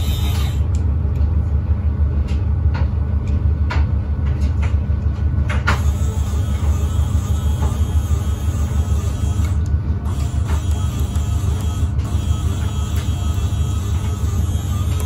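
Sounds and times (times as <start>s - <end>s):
electric motor low drone: 0.0s - 2.0s, 5.7s - 15.0s.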